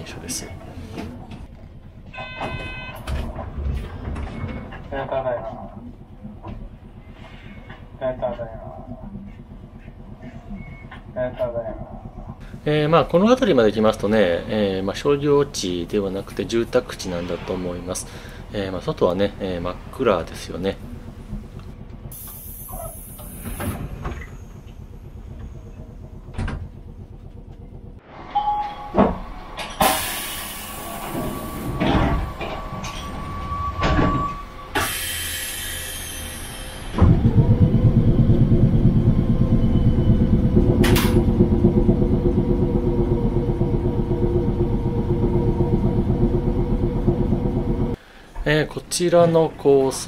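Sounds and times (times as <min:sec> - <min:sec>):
tram motors and wheels rumbling: 0:00.0 - 0:50.0
steady tone: 0:24.0 - 0:48.0.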